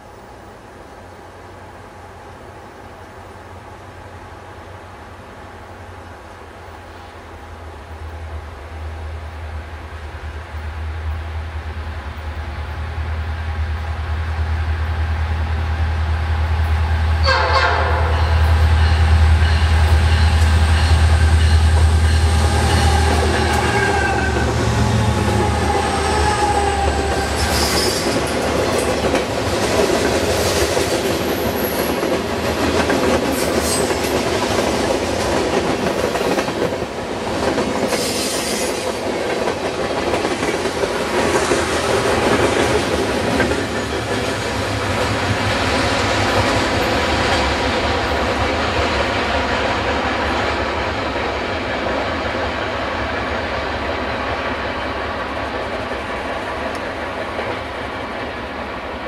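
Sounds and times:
locomotive engines rumbling: 1.2s - 38.0s
train wheels clacking on rails: 16.4s - 59.0s
wheel squeal: 25.0s - 28.2s.

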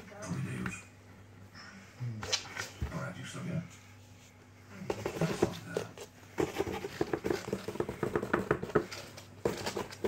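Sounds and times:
scratching and tapping on cardboard: 4.8s - 10.0s.

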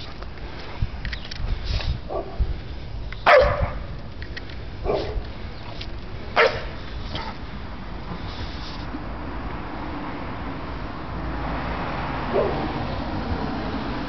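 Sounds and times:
puppies barking: 3.3s - 3.8s, 6.4s - 7.4s.

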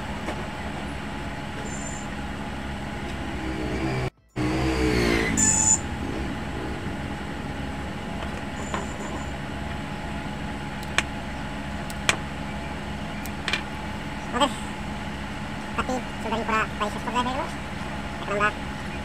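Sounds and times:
background hum: 0.0s - 19.0s
vehicle passing: 0.0s - 19.0s
short high tone: 3.2s - 9.5s.

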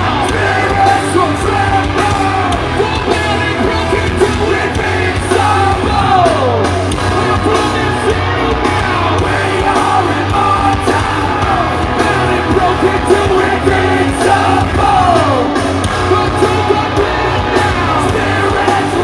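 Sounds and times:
drums: 0.0s - 19.0s
electric guitars: 0.0s - 19.0s
shouted and sung vocals: 0.0s - 19.0s.

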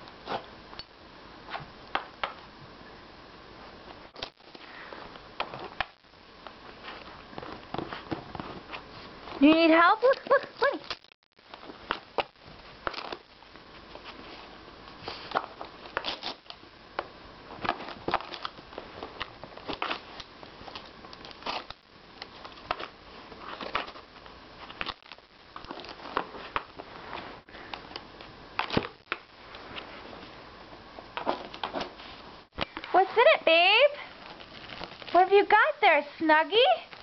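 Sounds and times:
wrapping paper crinkling and tearing: 17.6s - 27.4s, 34.1s - 35.6s, 36.6s - 37.0s.

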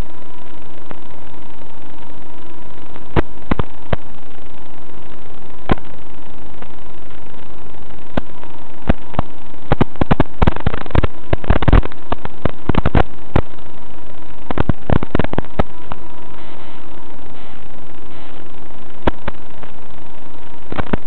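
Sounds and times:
radio static hiss: 0.0s - 21.0s
static crackles and pops: 0.0s - 21.0s.

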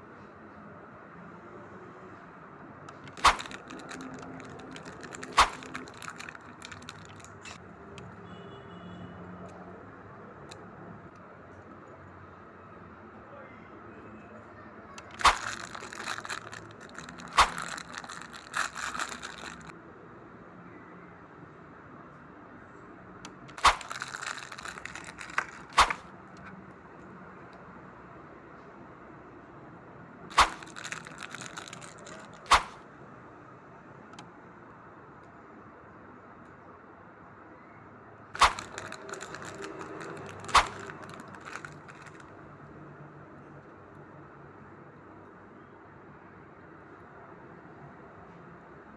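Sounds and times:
keyrings clicking and rattling: 2.9s - 7.6s, 15.0s - 19.7s, 23.4s - 26.0s, 30.3s - 32.8s, 38.4s - 42.2s
plastic bag crinkling: 2.9s - 7.6s, 15.0s - 19.7s, 23.5s - 26.1s, 30.3s - 32.8s, 38.4s - 42.3s
sharp plastic cracks: 2.9s - 7.6s, 15.0s - 19.7s, 23.3s - 26.5s, 30.3s - 32.8s, 38.4s - 42.3s
metal keychains knocking: 3.0s - 7.6s, 38.4s - 42.2s.

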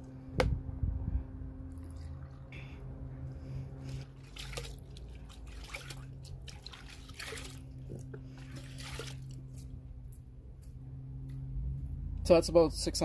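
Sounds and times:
water sloshing in a plastic bucket: 3.8s - 9.8s
cup splashing in water: 4.0s - 9.4s.

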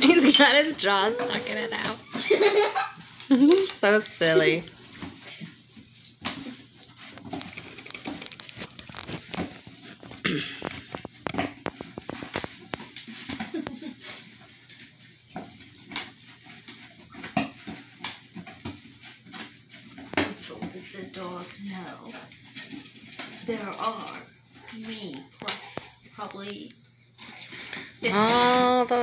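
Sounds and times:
dog chewing cardboard box: 4.8s - 21.4s.

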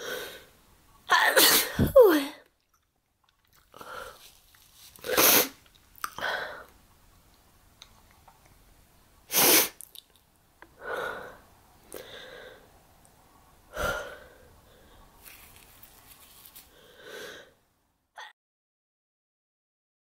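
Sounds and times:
woman sneezing: 1.1s - 2.3s
breathy sounds: 3.7s - 4.4s, 10.8s - 12.7s, 13.7s - 15.2s.

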